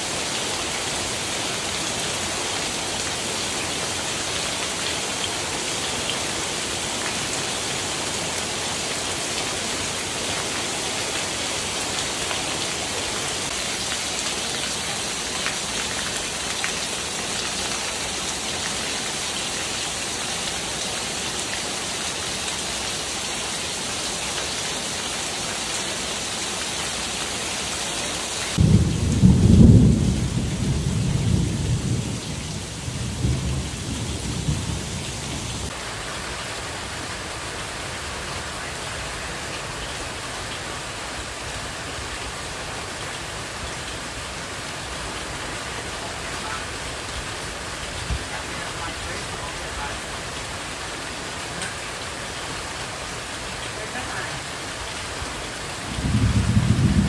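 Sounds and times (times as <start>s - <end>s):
heavy rain pouring: 0.0s - 57.0s
thunder rumbling: 28.5s - 35.7s, 55.9s - 57.0s.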